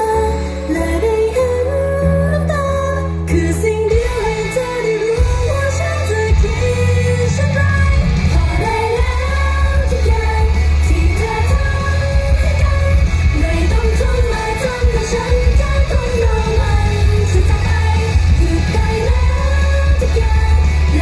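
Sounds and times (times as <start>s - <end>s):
loud pop music with bass: 0.0s - 21.0s
women singing into microphones: 0.0s - 21.0s.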